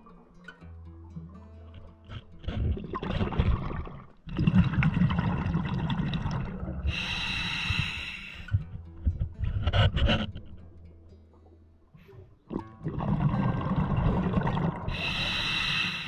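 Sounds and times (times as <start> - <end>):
exhaled bubbles gurgling: 2.3 - 10.4, 12.5 - 16.0
regulator hissing inhale: 6.8 - 8.7, 14.9 - 16.0.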